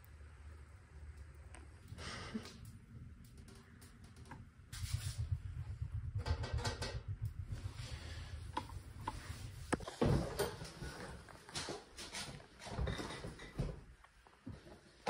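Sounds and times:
low rumble: 0.0s - 11.7s.

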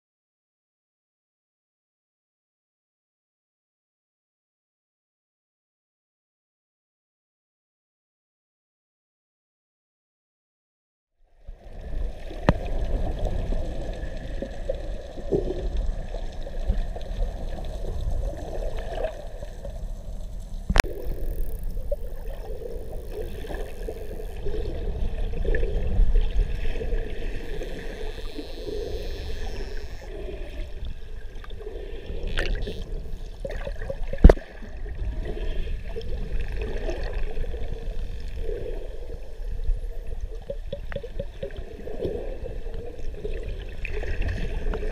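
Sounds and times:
muffled underwater wash: 11.2s - 44.9s.

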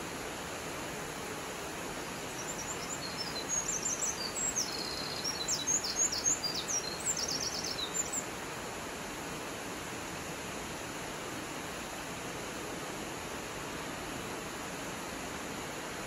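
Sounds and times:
songbird chirping and trilling: 2.2s - 8.3s.

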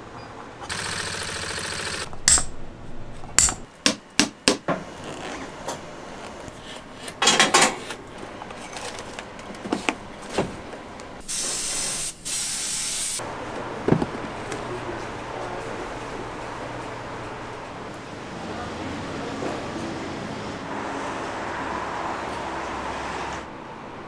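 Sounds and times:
spray bursts: 11.2s - 13.2s.

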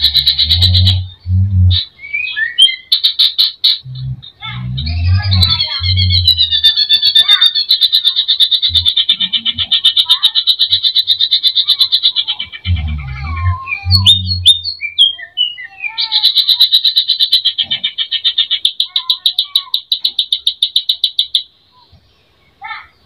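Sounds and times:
low thumps: 0.0s - 1.9s, 3.8s - 6.4s
bird whistled notes: 13.6s - 16.0s.

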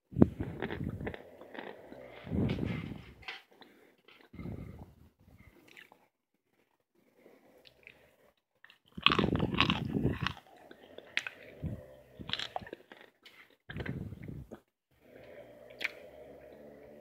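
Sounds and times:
crunchy chewing: 0.2s - 2.3s, 7.6s - 14.6s, 15.2s - 16.9s.

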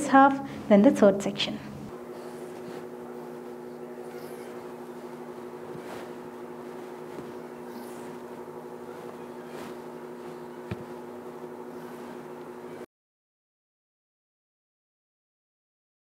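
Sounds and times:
hum of held tones: 0.0s - 12.9s
fingers swishing through wet hair: 2.0s - 12.8s.

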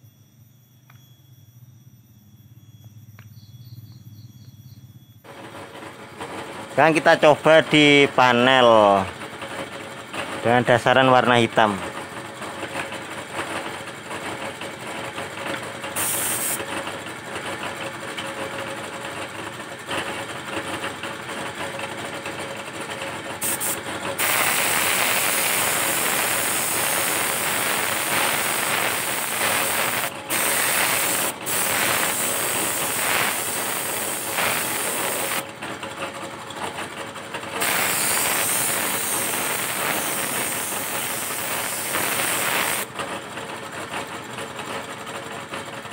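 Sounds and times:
air compressor running: 5.2s - 45.9s
airbrush spraying hiss: 16.0s - 16.6s, 23.4s - 35.4s, 37.6s - 42.9s.

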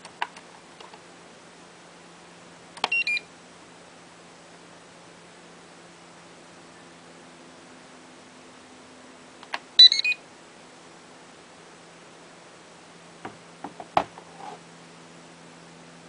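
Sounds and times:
choppy electronic beep: 9.8s - 10.2s.

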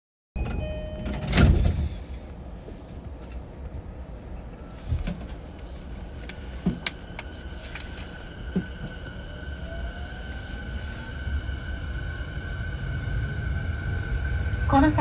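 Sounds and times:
dull clunks of train car: 6.2s - 7.3s.

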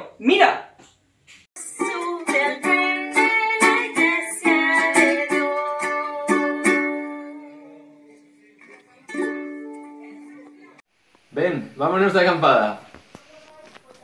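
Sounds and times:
ukulele strumming: 1.6s - 7.6s, 8.6s - 10.8s.

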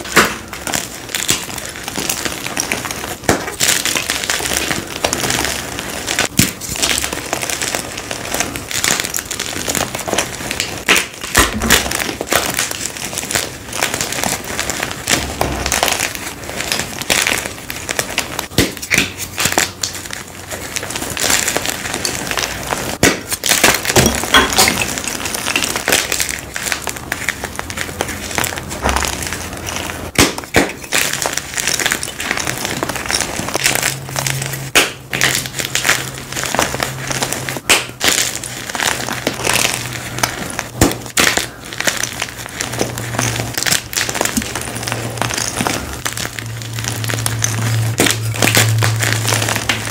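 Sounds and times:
chalk crushed and crunching: 0.0s - 49.9s
chalk pieces snapping: 0.0s - 49.9s.

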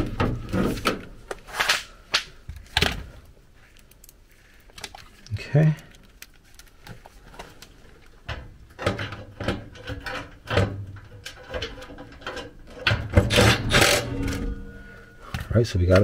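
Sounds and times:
clicks and scrapes of metal handling: 3.7s - 14.9s.

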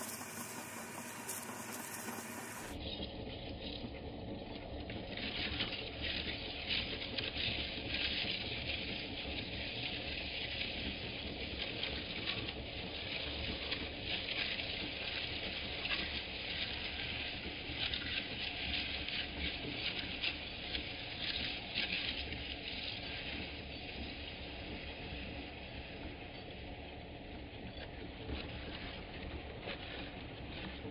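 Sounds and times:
grinder motor hum: 0.0s - 2.8s.

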